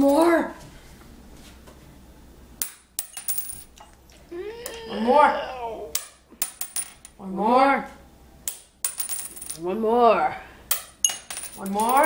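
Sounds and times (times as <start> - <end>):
coin clattering on stone countertop: 2.6 - 3.9, 6.0 - 7.2, 8.5 - 9.6, 10.7 - 12.0
person exclaiming: 4.3 - 6.0.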